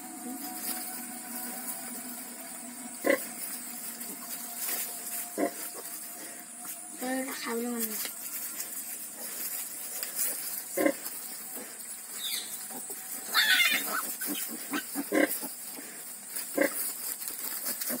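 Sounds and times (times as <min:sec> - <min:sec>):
pig grunts: 0:12.7 - 0:16.9
piglet squeal: 0:13.3 - 0:15.3.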